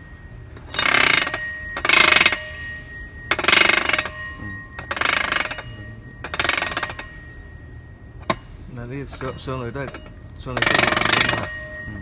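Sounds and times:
roller chain rattling over sprocket: 0:00.6 - 0:02.5, 0:03.3 - 0:07.2, 0:08.9 - 0:12.0.

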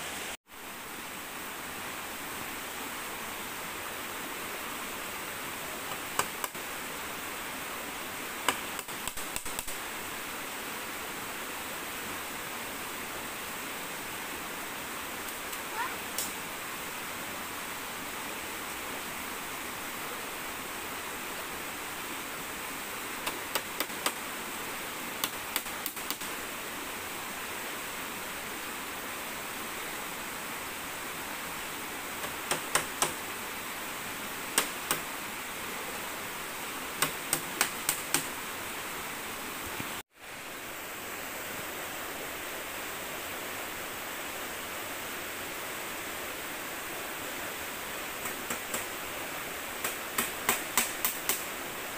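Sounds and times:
river rushing: 0:00.0 - 0:51.9
sharp knocks on bamboo: 0:05.9 - 0:06.6, 0:08.4 - 0:09.8, 0:23.2 - 0:24.2, 0:25.2 - 0:26.3, 0:32.2 - 0:33.2, 0:34.6 - 0:35.1, 0:37.0 - 0:38.3, 0:48.2 - 0:48.9, 0:49.8 - 0:51.4.

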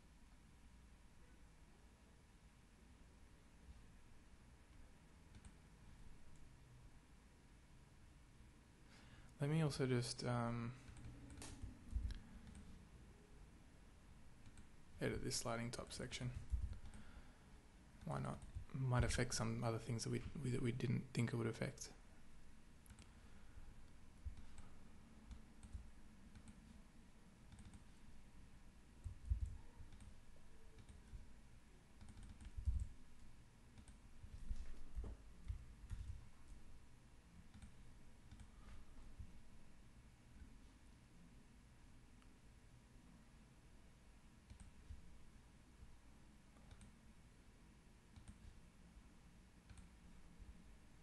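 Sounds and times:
dull low thumps: 0:16.4 - 0:16.8
faint computer mouse clicks: 0:44.5 - 0:44.8, 0:46.6 - 0:47.0.

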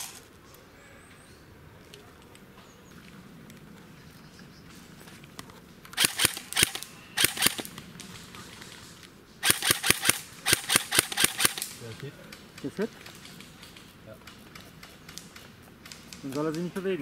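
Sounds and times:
airsoft guns firing: 0:00.0 - 0:00.2, 0:06.0 - 0:07.8, 0:09.4 - 0:13.8.

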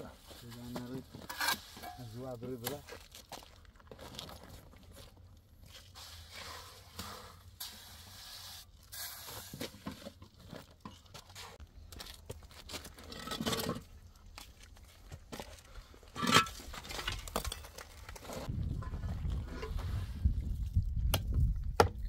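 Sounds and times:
shovel scraping through mortar: 0:01.1 - 0:02.2.

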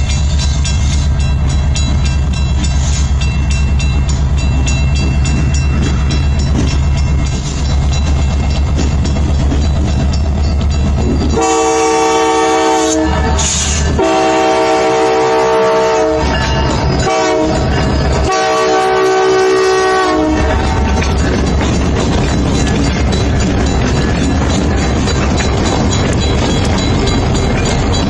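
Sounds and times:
diesel locomotive engine rumble: 0:00.0 - 0:28.0
locomotive air horn blasts: 0:11.4 - 0:16.4, 0:17.0 - 0:17.6, 0:18.2 - 0:20.9.

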